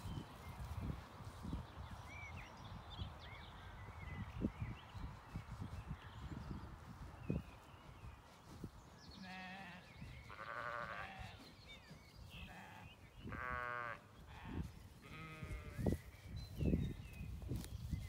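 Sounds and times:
sheep bleating: 9.2s - 11.4s, 12.4s - 15.8s.

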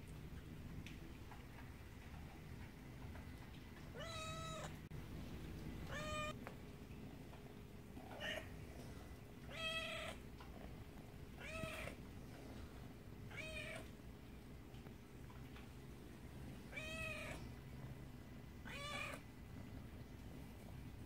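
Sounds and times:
kitten meowing: 5.9s - 6.3s.

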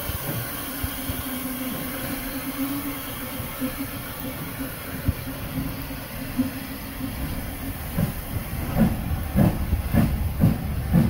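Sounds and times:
steam hissing: 0.0s - 11.0s
steam locomotive exhaust chuffs: 0.0s - 11.0s.

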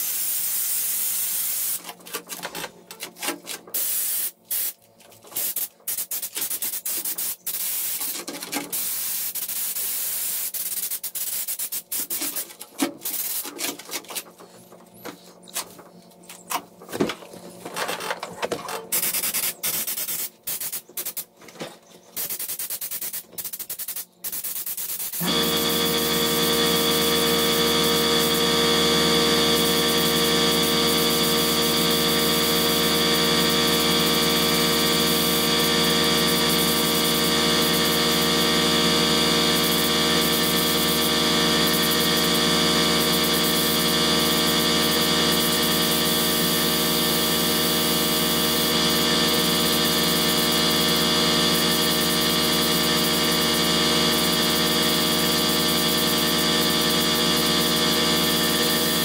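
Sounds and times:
spray gun hissing bursts: 0.0s - 1.8s, 3.8s - 4.8s, 5.4s - 8.1s, 8.7s - 12.4s, 19.0s - 21.2s, 22.2s - 25.2s
air compressor running: 0.0s - 2.7s, 3.5s - 21.4s, 22.2s - 59.0s.

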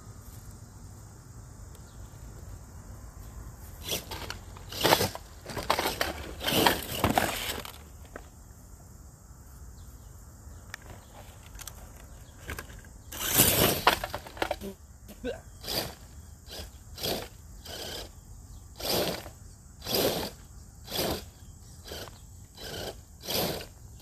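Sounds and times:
toy truck tires crunching gravel: 3.7s - 8.4s, 10.7s - 14.8s, 15.6s - 24.0s.

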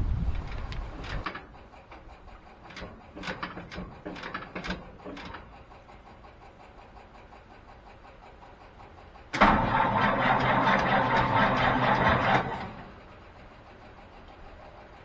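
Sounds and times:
light clicks and clunks in truck cab: 0.3s - 2.1s, 2.7s - 5.5s.

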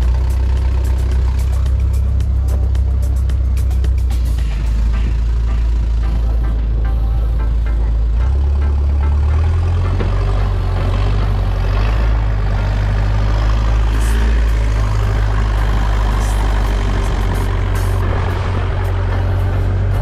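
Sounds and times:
boat engine droning: 0.0s - 20.0s
rushing noise: 9.3s - 20.0s.

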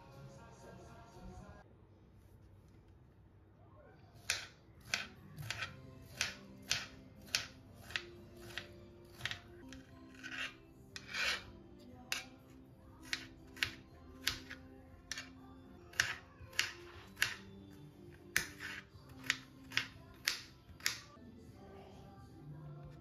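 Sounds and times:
knife chopping on cutting board: 4.2s - 11.4s, 13.0s - 15.3s, 15.9s - 17.4s, 18.3s - 21.1s.

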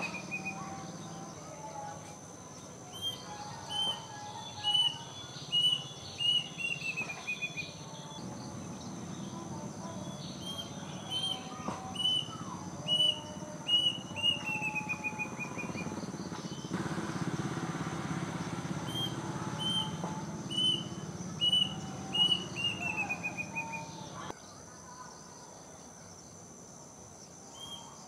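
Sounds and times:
cuckoo singing whistled notes: 0.0s - 1.6s, 2.8s - 8.2s, 10.1s - 16.0s, 18.6s - 24.3s.

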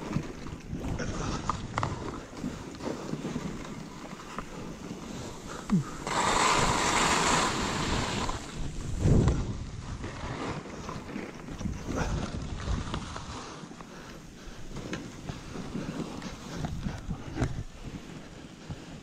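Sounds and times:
skis running through powder snow: 0.0s - 19.0s
wind noise on microphone: 0.0s - 19.0s
hiss of snow spray: 5.2s - 8.6s.

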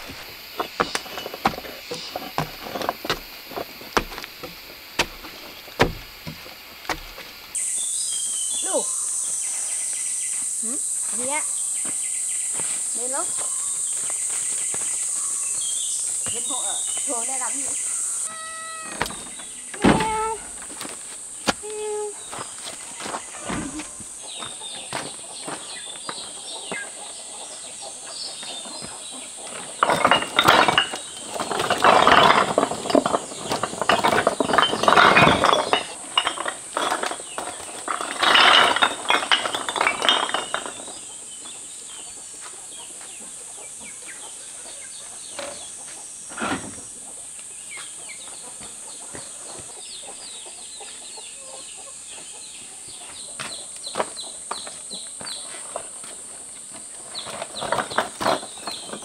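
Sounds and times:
bricks clattering and knocking: 0.0s - 7.4s, 28.8s - 41.1s, 53.9s - 59.0s
steady high hiss: 0.0s - 24.4s.

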